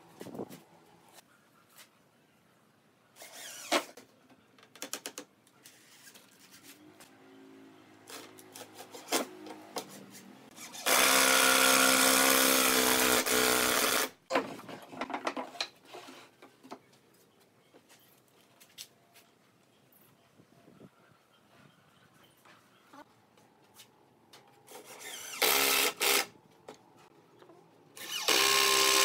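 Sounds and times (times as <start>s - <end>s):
cordless drill running: 10.7s - 14.1s, 24.8s - 26.3s, 28.0s - 29.0s.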